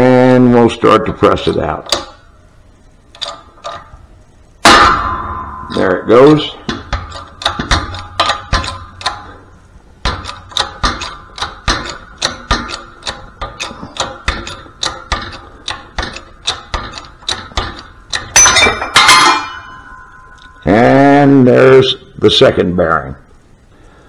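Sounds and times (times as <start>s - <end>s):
shop press metallic clicks: 6.7s - 9.3s, 10.0s - 19.9s.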